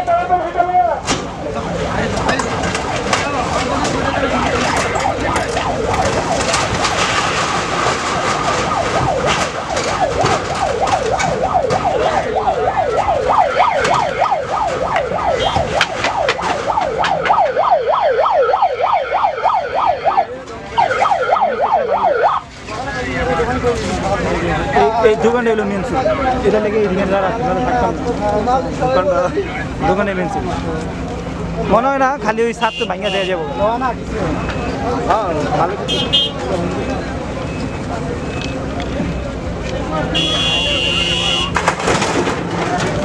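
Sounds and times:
fast yelping siren: 2.6s - 7.1s, 7.7s - 22.5s
excavator knocking and clattering: 41.5s - 43.0s.

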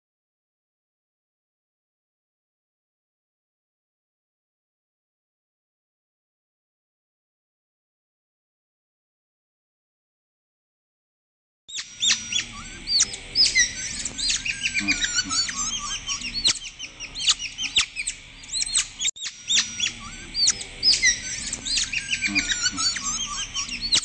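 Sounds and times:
animals chirping and whistling: 11.7s - 24.0s.

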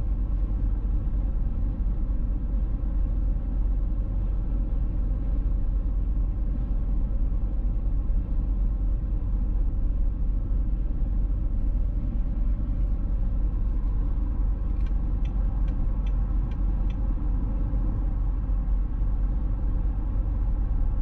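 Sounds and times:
car engine and road noise drone: 0.0s - 21.0s
light ticks: 14.6s - 17.0s.

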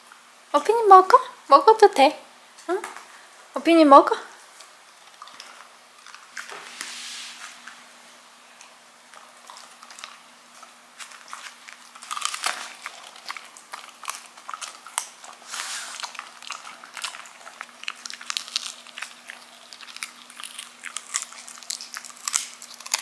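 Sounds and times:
dog gnawing hard chew: 4.5s - 6.7s, 8.6s - 23.0s.

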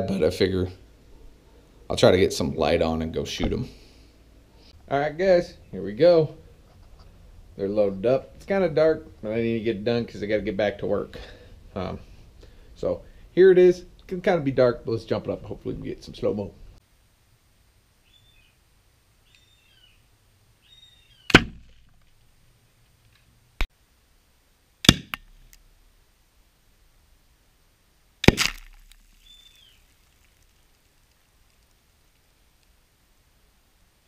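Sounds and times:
plastic bottles bursting with bangs: 21.3s - 22.0s, 24.8s - 25.5s, 28.2s - 29.9s.

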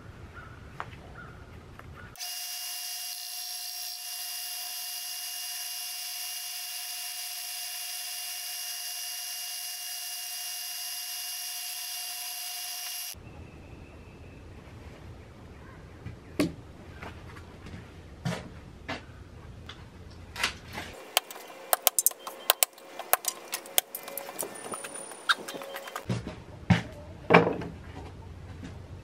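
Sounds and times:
power sander whining: 2.2s - 13.2s
sticks clicking: 21.0s - 26.1s.

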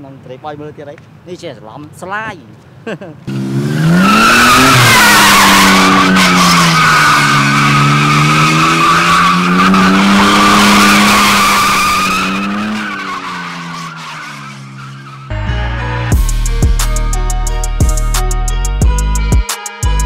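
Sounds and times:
car engine at high revs: 3.2s - 15.3s
tyres squealing: 3.8s - 15.3s.

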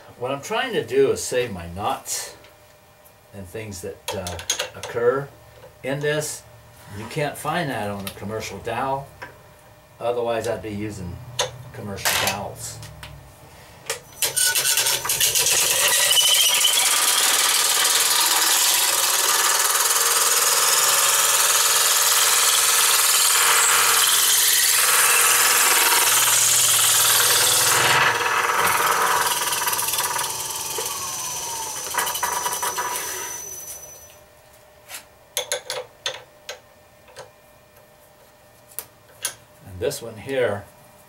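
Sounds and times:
blade shaving spinning wood: 14.1s - 34.1s.

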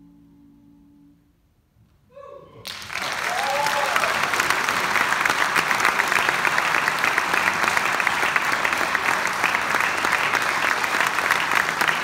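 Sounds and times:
crowd whooping: 2.6s - 4.4s
audience applauding: 2.6s - 12.0s.

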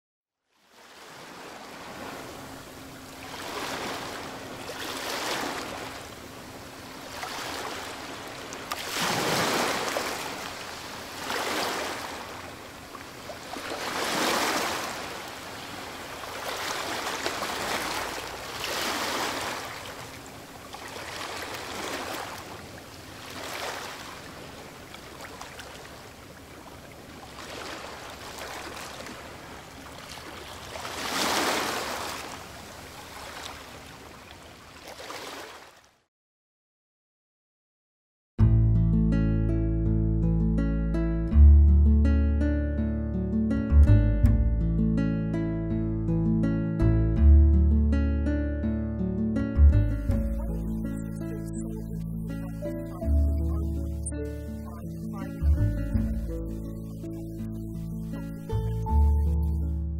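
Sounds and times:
waves washing on shore: 0.6s - 35.9s.

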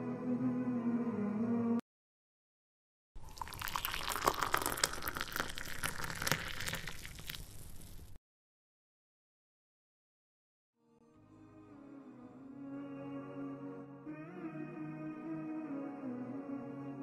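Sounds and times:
milkshake pouring into glass: 3.2s - 8.1s.

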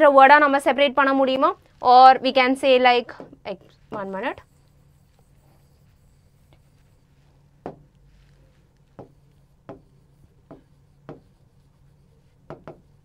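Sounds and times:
stylus tapping on a screen: 7.6s - 8.0s, 8.8s - 11.4s, 12.5s - 12.9s.

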